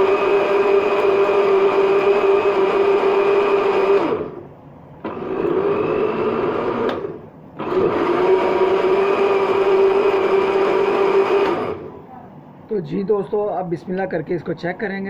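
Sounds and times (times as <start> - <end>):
blender motor running: 0.0 - 4.4, 5.0 - 11.9
blender switch click: 6.8 - 7.1.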